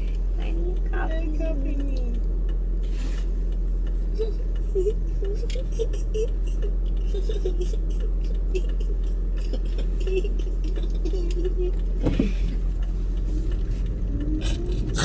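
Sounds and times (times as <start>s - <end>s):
car cabin hum: 0.0s - 15.0s
stifled giggles: 4.1s - 11.9s.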